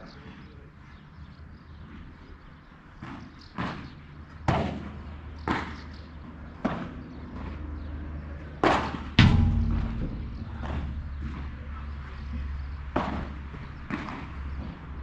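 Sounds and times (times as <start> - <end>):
rackets hitting ball: 8.7 - 14.8.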